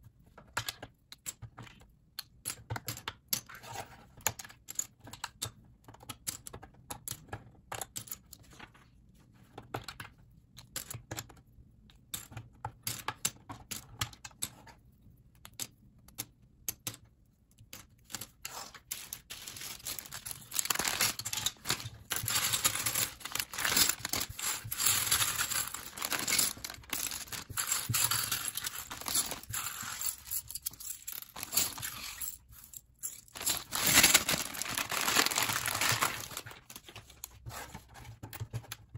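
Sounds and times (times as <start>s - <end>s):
plastic bag crinkling: 19.0s - 36.9s.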